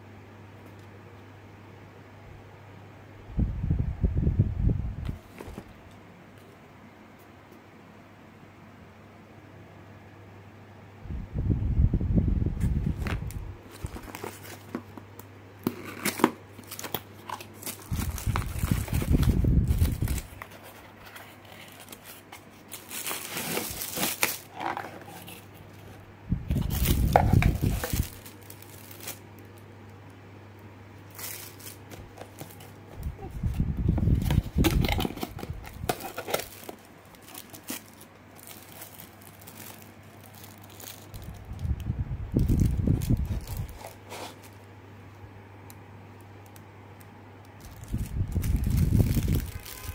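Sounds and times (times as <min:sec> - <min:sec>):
cardboard box handling: 0:05.2 - 0:05.8, 0:13.0 - 0:15.0, 0:15.6 - 0:29.2, 0:31.2 - 0:38.7
plastic bag crinkling: 0:13.0 - 0:14.9, 0:15.7 - 0:29.6, 0:31.0 - 0:44.7, 0:47.6 - 0:49.9.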